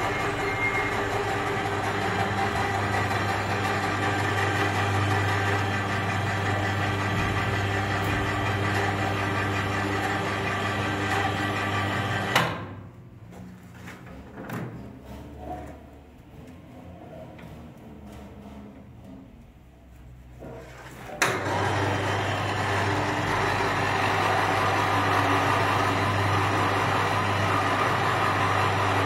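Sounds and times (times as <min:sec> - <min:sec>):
pipe bender motor humming: 0:00.0 - 0:12.6, 0:21.2 - 0:29.0.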